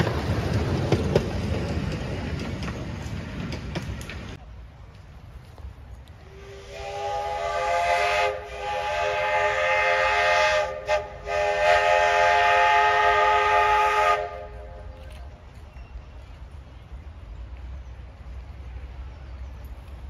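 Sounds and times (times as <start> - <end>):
steam locomotive chime whistle: 6.3 - 14.9.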